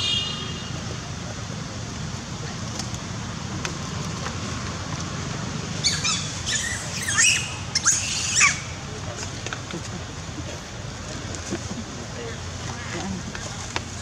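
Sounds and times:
high-pitched chirping animal calls: 5.8s - 8.8s.

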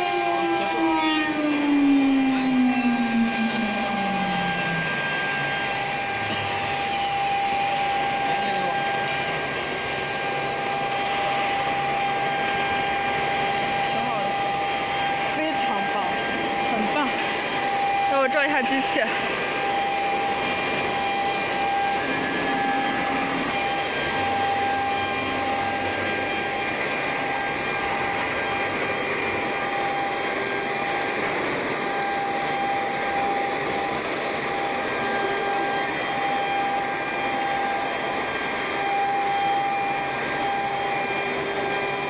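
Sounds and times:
wood router machine noise: 0.0s - 5.0s.

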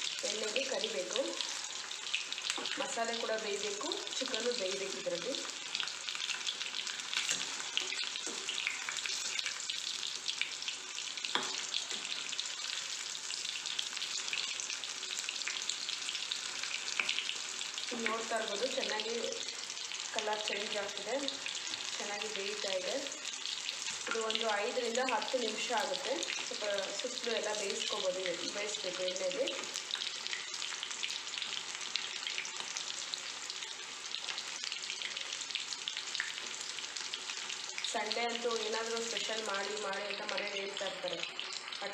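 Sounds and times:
meat deep-frying in hot oil: 0.0s - 41.9s
spoon stirring in oil: 11.2s - 12.4s.

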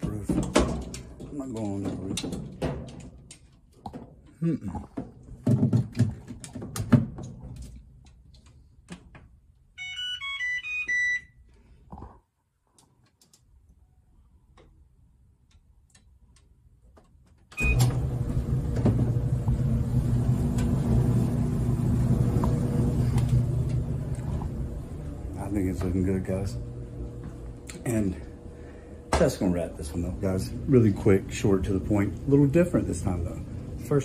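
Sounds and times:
dryer blower rushing: 17.6s - 34.0s
dryer motor hum: 17.6s - 34.0s.

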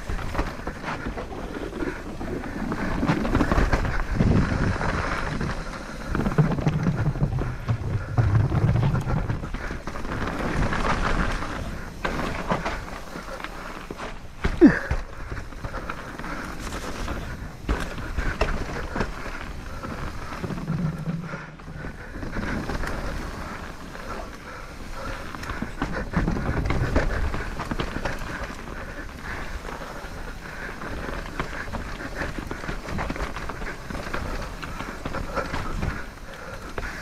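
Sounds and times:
wind buffeting microphone: 0.0s - 12.6s
knocks over bumps: 0.0s - 13.1s
bike tyre rumble on dirt: 0.0s - 37.0s.

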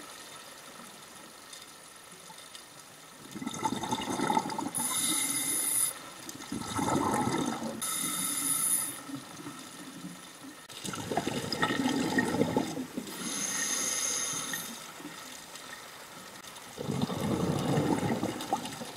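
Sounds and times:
bubbling exhalations: 3.4s - 5.0s, 6.5s - 7.8s, 10.9s - 13.4s, 16.8s - 18.9s
diver breathing through regulator: 4.8s - 6.0s, 13.1s - 14.8s.

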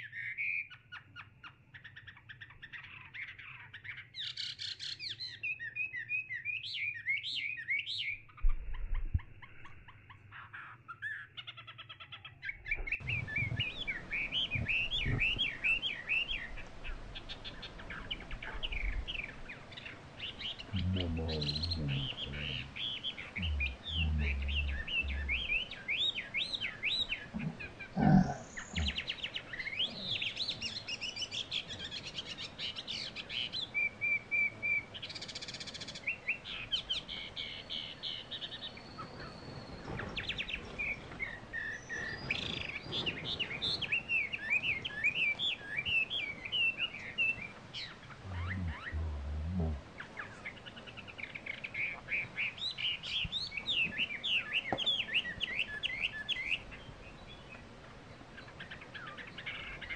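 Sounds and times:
birds chirping and singing: 0.0s - 59.9s.

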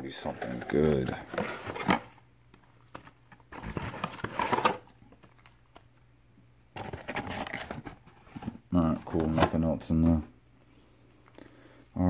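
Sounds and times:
card packs rustling and crinkling: 0.0s - 5.9s, 6.8s - 10.2s.

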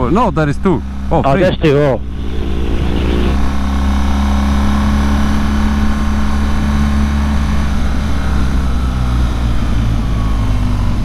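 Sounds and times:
motorcycle engine running: 0.0s - 11.0s
rushing noise: 1.4s - 6.2s.

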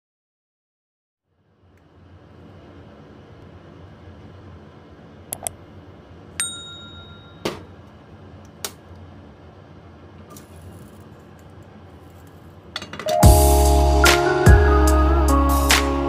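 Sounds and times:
mouse clicks: 5.3s - 5.6s
bright bell-like ding: 6.4s - 7.5s.

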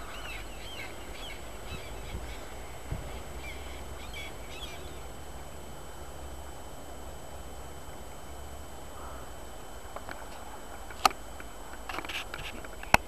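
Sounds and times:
crow call: 0.0s - 5.0s, 8.9s - 9.4s
faint background hiss: 0.0s - 13.0s.

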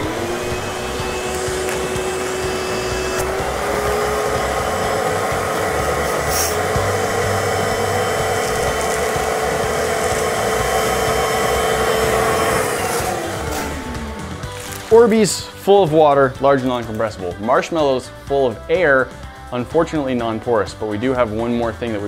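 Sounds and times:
shop vacuum motor whine: 0.0s - 15.6s.

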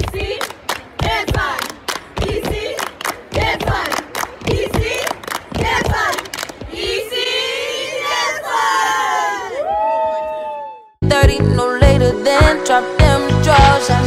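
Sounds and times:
girls chanting a cheer: 0.0s - 9.6s.

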